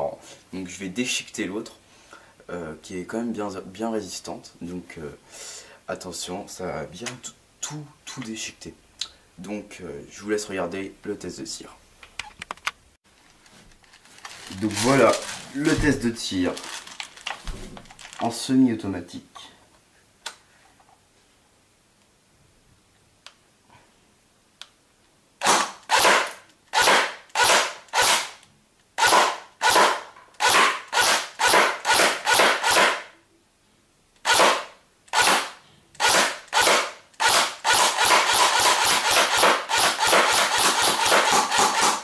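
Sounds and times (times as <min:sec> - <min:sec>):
airsoft gun shots: 0:25.4 - 0:28.4, 0:29.0 - 0:33.1, 0:34.2 - 0:42.0.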